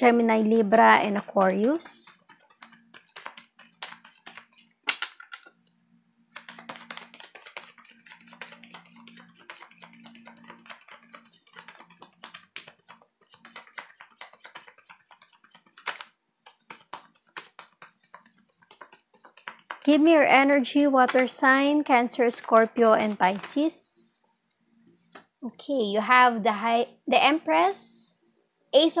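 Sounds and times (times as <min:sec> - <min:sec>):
cards shuffled by hand: 0:01.0 - 0:05.6, 0:06.3 - 0:19.9, 0:22.2 - 0:24.1.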